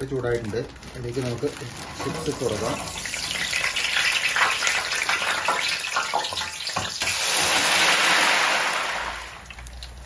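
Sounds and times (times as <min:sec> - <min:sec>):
hot oil hissing and bubbling: 0:00.0 - 0:09.5
fryer basket clattering: 0:01.0 - 0:07.5.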